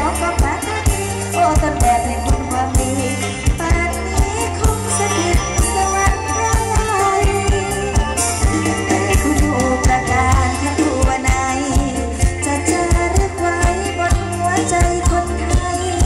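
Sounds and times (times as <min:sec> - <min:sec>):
drum kit beat: 0:00.0 - 0:16.0
melody line: 0:01.6 - 0:12.0.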